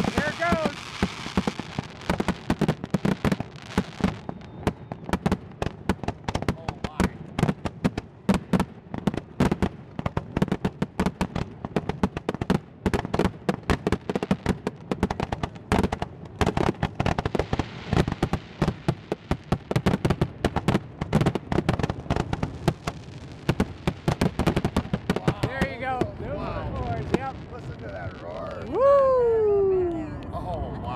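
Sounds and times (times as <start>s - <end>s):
fireworks shells bursting: 0.0s - 6.4s.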